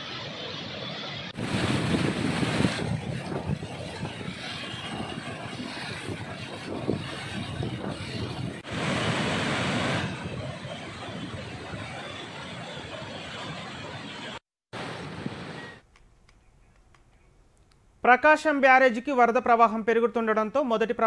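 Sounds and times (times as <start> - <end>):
wind buffeting microphone: 1.3 - 15.8
flood water rushing and churning: 4.6 - 11.2.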